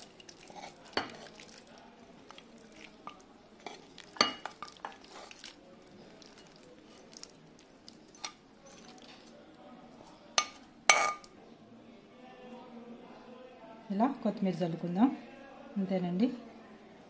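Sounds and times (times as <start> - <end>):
metal spoon scraping pan: 0.4 - 1.3.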